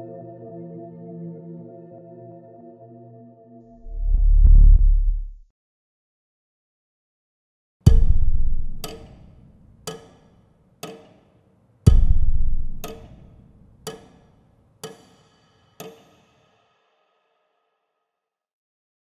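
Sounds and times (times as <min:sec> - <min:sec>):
sharp ringing knocks: 0:07.9 - 0:09.3.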